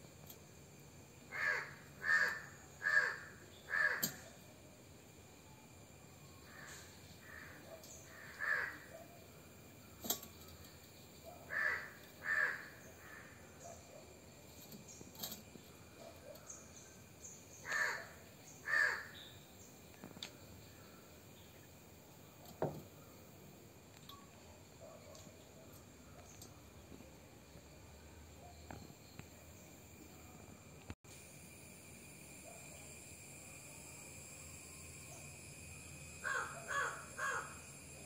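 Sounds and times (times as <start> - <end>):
crow cawing: 1.3 - 4.3, 6.5 - 8.9, 11.5 - 13.4, 17.6 - 19.2, 36.2 - 37.6.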